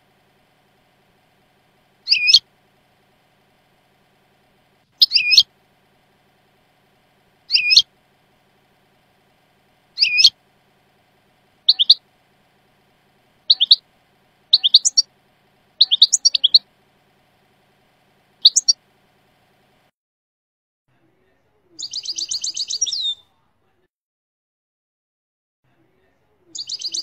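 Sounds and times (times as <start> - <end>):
goldfinch calls: 2.0 - 2.5, 4.9 - 5.5, 7.5 - 7.9, 10.0 - 10.4, 11.6 - 12.0, 13.4 - 13.8, 14.5 - 15.1, 15.8 - 16.7, 18.4 - 18.8, 21.8 - 23.1, 26.6 - 27.0
rattling bird trill: 2.0 - 2.5, 4.9 - 5.5, 7.5 - 7.9, 10.0 - 10.4, 11.6 - 12.0, 13.4 - 13.8, 14.5 - 15.1, 15.8 - 16.7, 18.4 - 18.8, 26.6 - 27.0.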